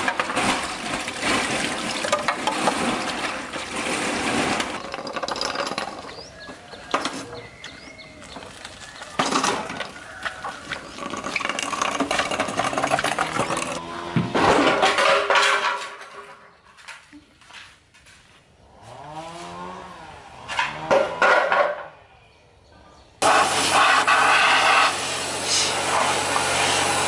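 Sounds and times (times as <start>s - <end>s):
hose water splashing into basin: 0.0s - 5.5s, 8.5s - 13.8s, 23.2s - 27.0s
motorcycle wheeled along rattling: 3.0s - 13.9s.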